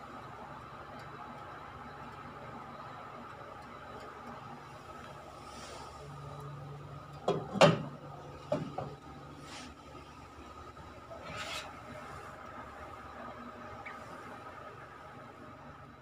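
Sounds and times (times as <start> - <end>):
faint steady hum: 0.0 - 16.0
rubbing scrapes: 11.2 - 11.7.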